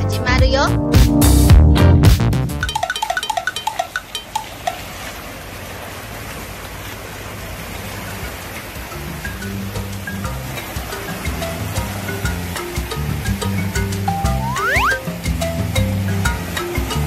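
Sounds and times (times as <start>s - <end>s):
small waves breaking: 2.7s - 13.2s
electronic music: 14.1s - 15.0s.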